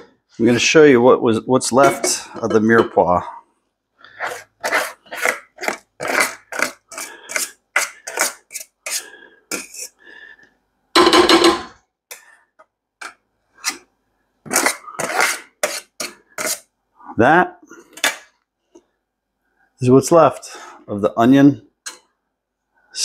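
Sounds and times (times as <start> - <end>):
spoon scraping metal strainer: 1.8 - 2.5, 4.2 - 10.0, 14.5 - 16.6.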